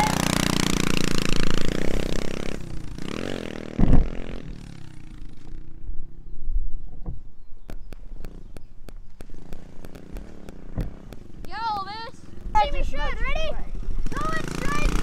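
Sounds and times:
small motorbike engine revving: 0.0s - 6.3s, 7.7s - 15.0s
loud low thump: 3.7s - 4.3s.

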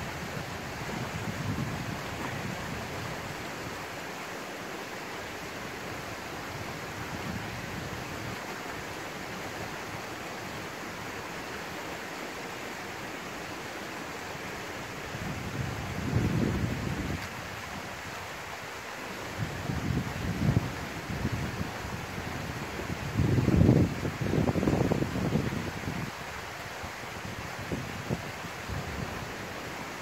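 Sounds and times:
wind noise on microphone: 0.0s - 3.8s, 6.0s - 8.6s, 14.9s - 30.0s.

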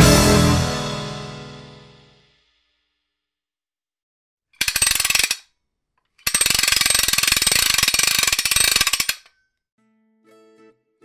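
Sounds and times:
rapid mechanical clicking: 4.6s - 5.4s, 6.2s - 9.3s
fast ratchet-like clicking: 4.6s - 5.5s, 6.2s - 9.3s.

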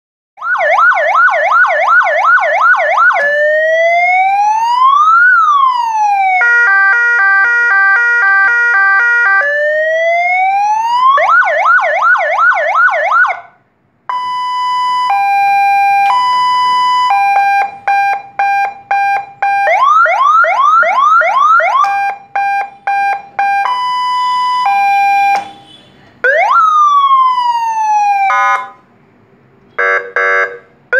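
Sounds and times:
electronic siren yelp and wail: 0.4s - 13.5s, 14.1s - 25.6s, 26.2s - 28.8s.

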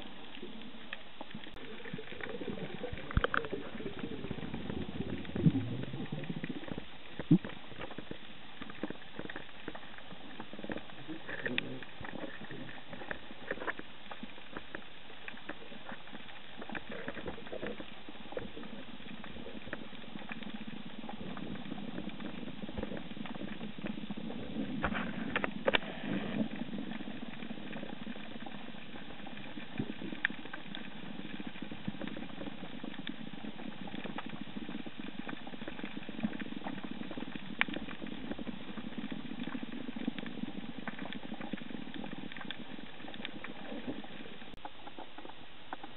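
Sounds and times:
crackling clicks: 0.0s - 45.9s
underwater hiss: 24.7s - 27.8s.

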